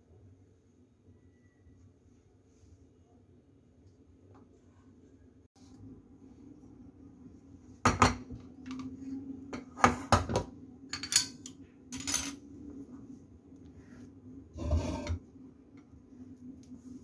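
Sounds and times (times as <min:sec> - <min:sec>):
chopsticks scraping a plate: 0:14.6 - 0:15.2.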